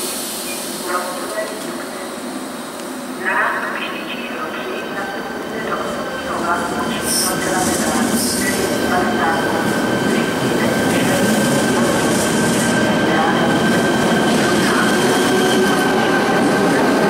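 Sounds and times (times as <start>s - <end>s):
train wheels rumbling on rails: 4.6s - 17.0s.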